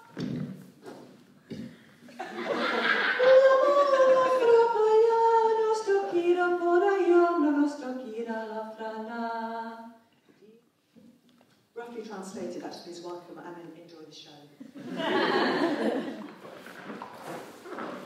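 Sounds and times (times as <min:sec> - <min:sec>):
woman singing unaccompanied: 0:03.2 - 0:10.0.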